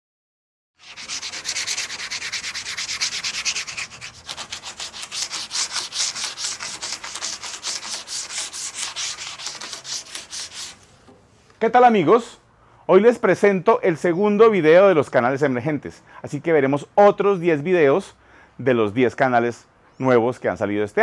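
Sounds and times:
sandpaper rubbing on board: 0.8 - 10.8.

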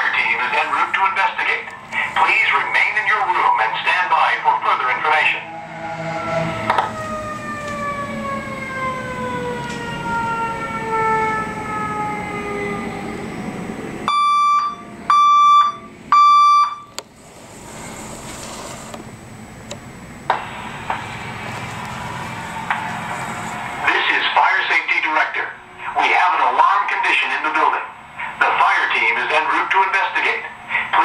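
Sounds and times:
fire engine siren winding down: 0.0 - 18.1, 19.0 - 31.0
traffic: 0.0 - 31.0
fire alarm beeps: 14.1 - 16.9
rain hissing: 17.2 - 19.1.

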